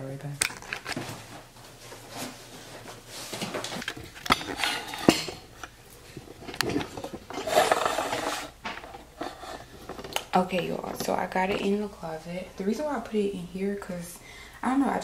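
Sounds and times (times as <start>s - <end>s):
scraping and rustling: 0.6s - 11.2s
household items clattering: 3.3s - 11.9s.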